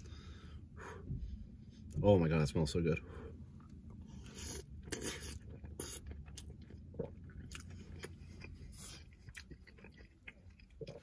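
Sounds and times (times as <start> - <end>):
steady low hum: 0.0 - 11.0
close-up chewing food: 3.6 - 11.0.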